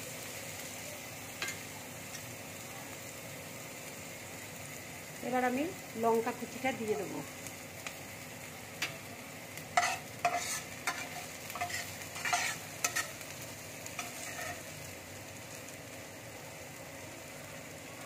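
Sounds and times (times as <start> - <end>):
onions sizzling in hot oil: 0.0 - 18.0
steel spatula scraping a pan: 9.7 - 14.8.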